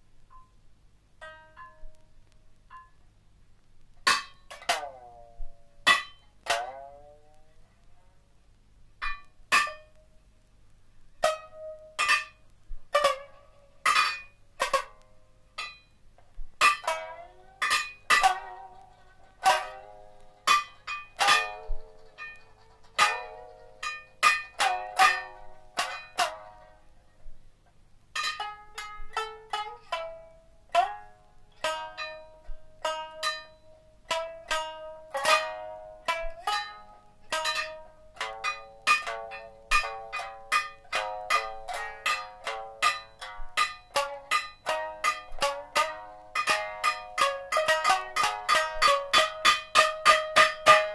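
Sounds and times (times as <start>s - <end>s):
plucked shamisen notes: 0.0s - 3.2s, 3.9s - 8.4s, 9.0s - 50.9s.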